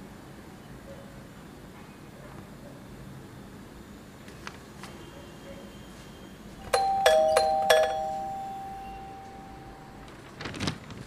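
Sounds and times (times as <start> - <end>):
doorbell chime: 6.7 - 10.0.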